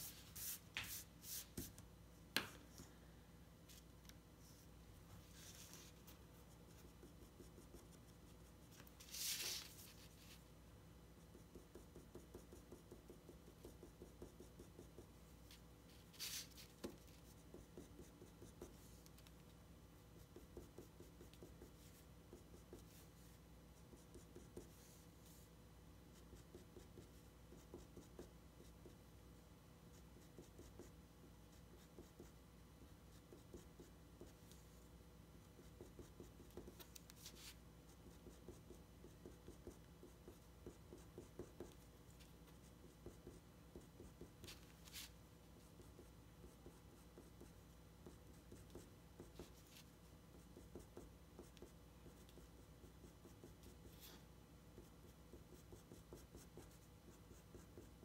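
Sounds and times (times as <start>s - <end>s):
pencil scratching on paper: 5.3s - 10.4s, 11.2s - 19.4s, 20.2s - 25.4s, 26.1s - 29.0s, 29.9s - 32.4s, 33.1s - 34.9s, 35.5s - 54.2s, 54.8s - 58.0s.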